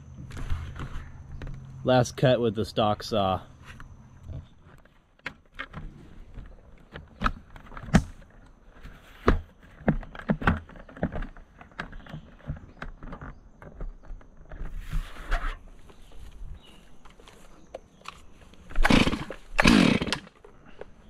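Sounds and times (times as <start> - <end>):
handling knocks and clicks: 3.7 - 14.8.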